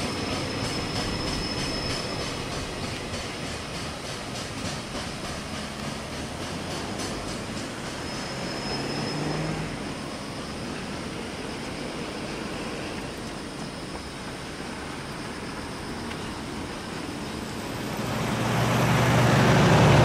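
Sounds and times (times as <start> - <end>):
freight train rumble: 0.0 - 20.0.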